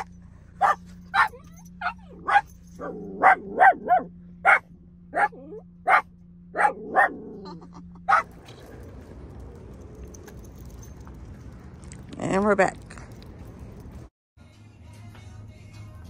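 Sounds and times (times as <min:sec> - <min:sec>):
puppy barking: 0:00.0 - 0:08.4
low hum inside car: 0:00.0 - 0:14.1.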